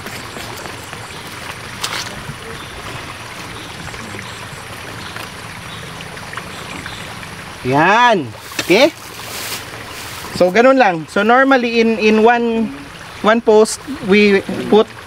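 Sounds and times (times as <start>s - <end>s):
outdoor background noise: 0.0s - 15.0s.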